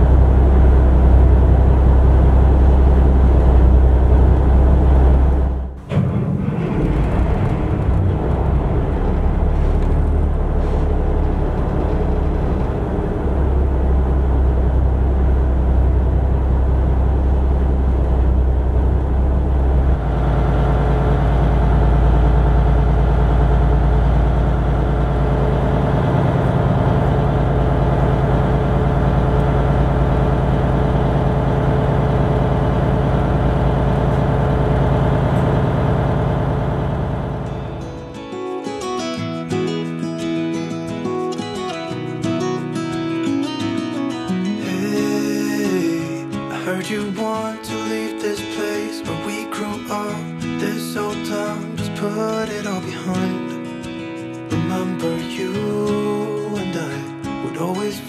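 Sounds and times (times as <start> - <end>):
boat diesel engine running: 0.0 - 38.8.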